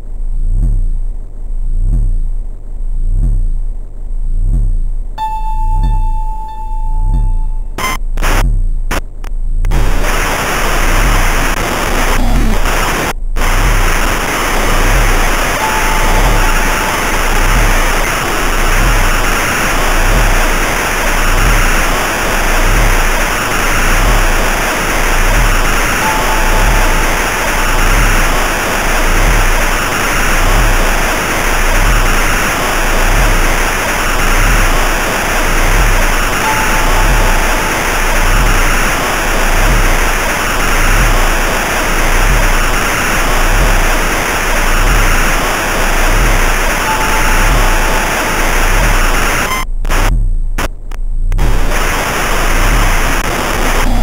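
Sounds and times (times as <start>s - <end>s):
slow bass pulse: 0.0s - 54.0s
electronic music with hiss: 9.7s - 50.1s, 51.4s - 54.0s.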